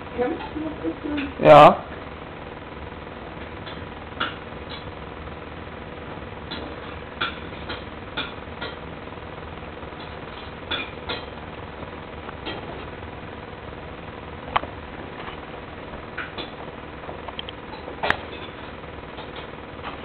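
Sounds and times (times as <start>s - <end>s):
faint hum: 0.0s - 20.0s.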